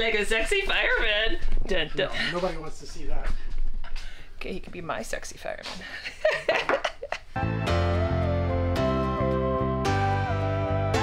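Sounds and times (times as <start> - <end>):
background music with held chords: 7.4 - 11.0.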